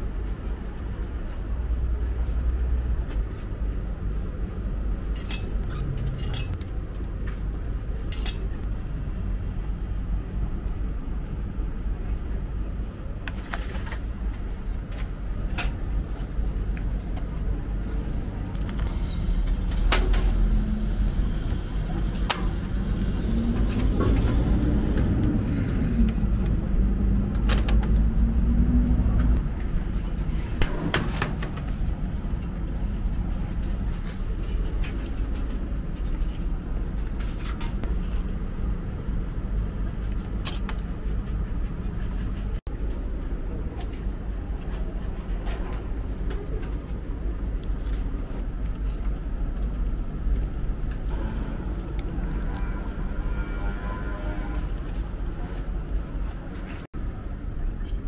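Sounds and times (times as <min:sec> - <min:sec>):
vending machine humming: 0:17.3 - 0:27.8.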